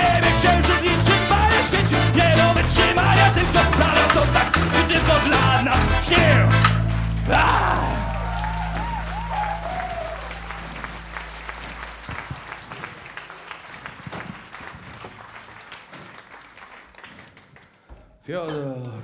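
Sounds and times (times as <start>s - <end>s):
audience applauding: 0.0s - 17.9s
rock band final chord: 2.1s - 12.6s.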